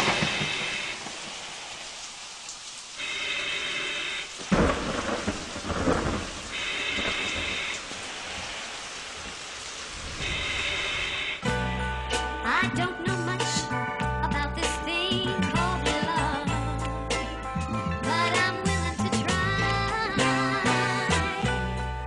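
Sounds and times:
thunder cracks and rumbling: 0:00.0 - 0:01.6, 0:04.4 - 0:09.4
steady rain: 0:00.0 - 0:11.5
music: 0:11.4 - 0:22.0.

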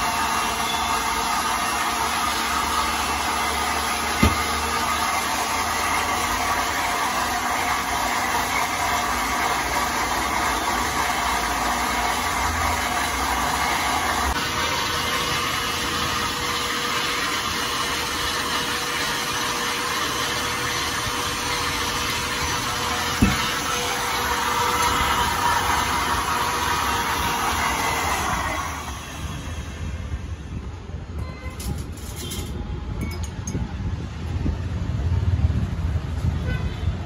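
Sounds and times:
mixer grinder motor whirring: 0:00.0 - 0:32.4.

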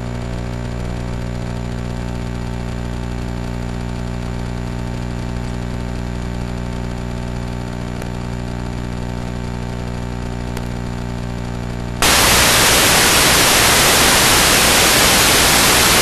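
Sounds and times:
low electrical hum: 0:00.0 - 0:16.0
loud static hiss: 0:12.0 - 0:16.0.

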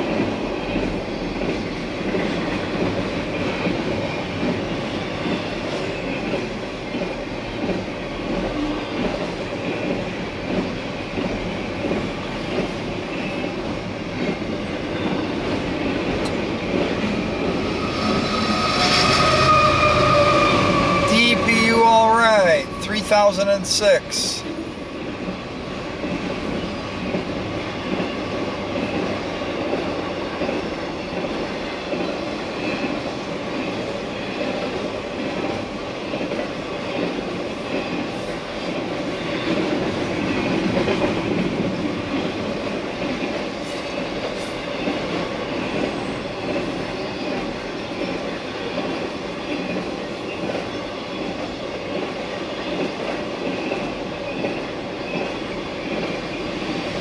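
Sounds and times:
train wheels clattering over rails: 0:00.0 - 0:21.0, 0:25.0 - 0:57.0.

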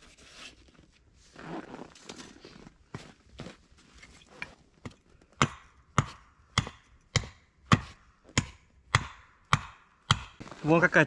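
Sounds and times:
axe chopping wood: 0:04.8 - 0:10.7.

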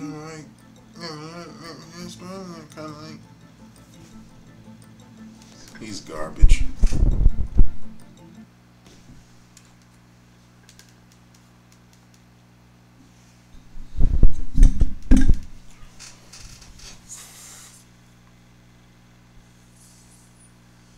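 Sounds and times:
low electrical hum: 0:00.0 - 0:20.9
computer mouse clicks: 0:10.7 - 0:12.2.

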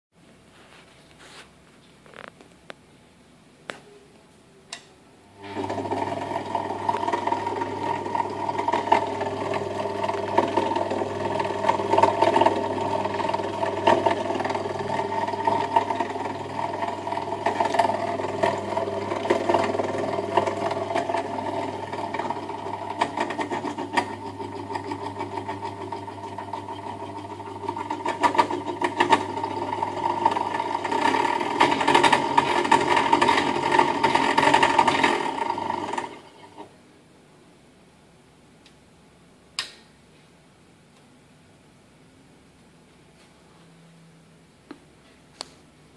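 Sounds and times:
motor hum: 0:05.3 - 0:36.7.

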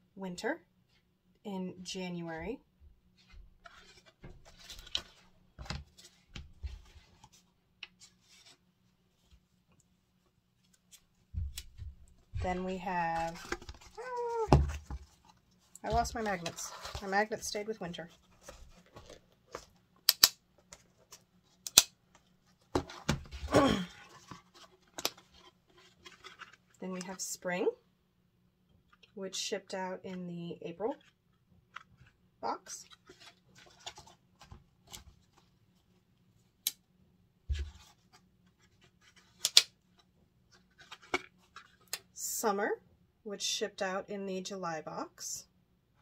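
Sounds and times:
paper rustling: 0:03.2 - 0:09.4, 0:10.6 - 0:19.8, 0:22.2 - 0:26.8, 0:32.8 - 0:35.6, 0:37.5 - 0:42.0.

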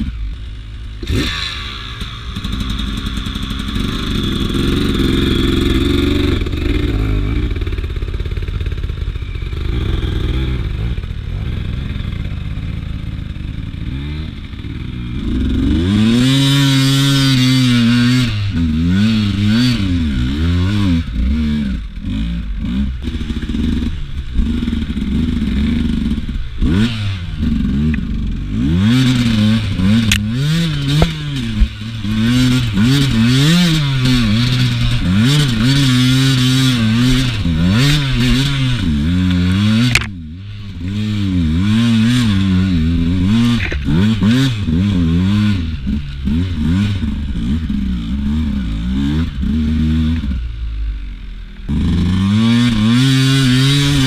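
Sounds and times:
motorcycle engine revving: 0:00.0 - 0:54.0
motorcycle knocks and clatter: 0:28.7 - 0:38.6, 0:39.3 - 0:40.2, 0:43.2 - 0:44.5.

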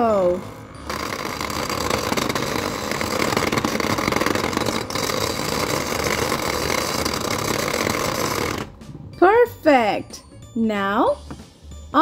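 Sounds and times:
toy blender motor whirring: 0:00.0 - 0:08.8.

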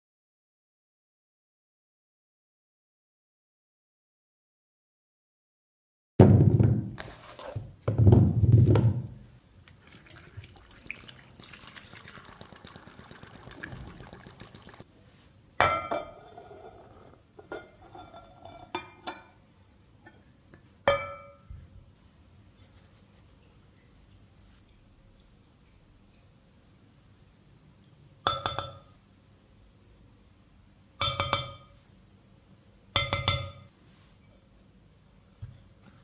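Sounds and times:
clinks against glass bowl: 0:15.6 - 0:16.7, 0:17.4 - 0:19.4, 0:20.0 - 0:21.5, 0:28.2 - 0:29.0, 0:31.0 - 0:31.8, 0:33.0 - 0:33.7.

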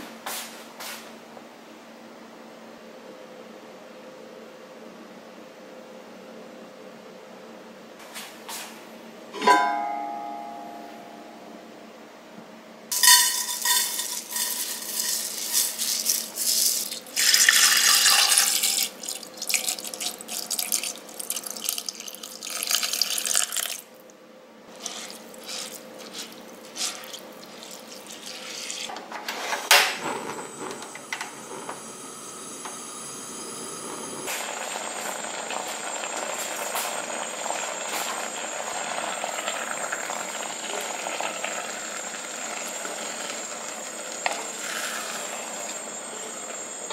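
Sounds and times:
rice rattling from metal strainer: 0:12.9 - 0:21.7
steady hiss of heating water: 0:12.9 - 0:24.1, 0:24.7 - 0:28.9, 0:29.7 - 0:46.9
water pouring and splashing: 0:14.0 - 0:23.8, 0:24.8 - 0:28.9.

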